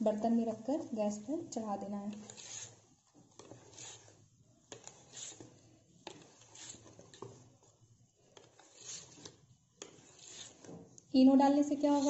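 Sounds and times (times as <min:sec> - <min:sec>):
whisk beating batter: 0:02.1 - 0:10.9, 0:11.6 - 0:12.0.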